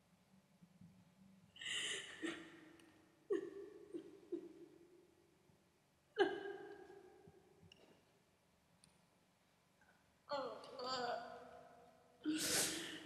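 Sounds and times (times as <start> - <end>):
woman gasping: 1.6 - 2.4.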